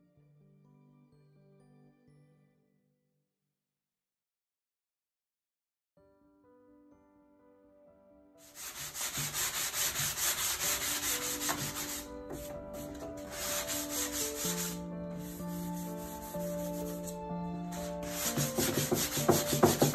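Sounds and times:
sanding wood: 8.4 - 19.9.

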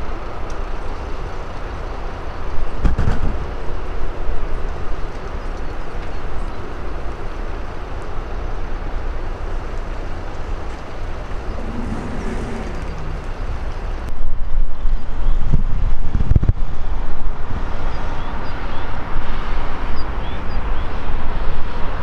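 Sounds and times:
low outdoor rumble: 0.0 - 17.7
wind blowing across microphone: 0.0 - 22.0
faint brief hum: 10.8 - 14.1.

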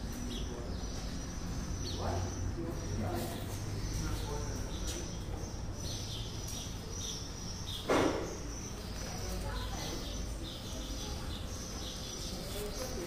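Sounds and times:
small birds chirping: 0.0 - 13.0.

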